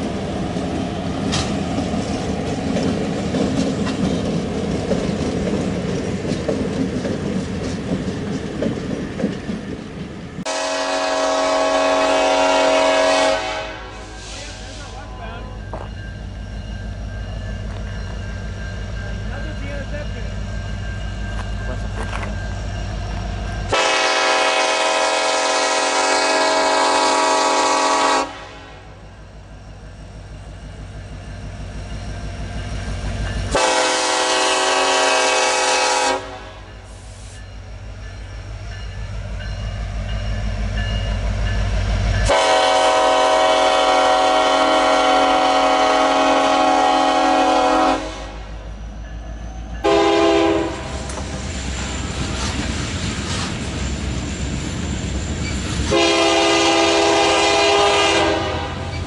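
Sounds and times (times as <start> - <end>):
train rumble: 0.0 - 59.0
locomotive air horn blasts: 10.5 - 14.8, 23.7 - 29.0, 33.5 - 36.8, 42.3 - 48.5, 49.8 - 51.0, 55.9 - 58.9.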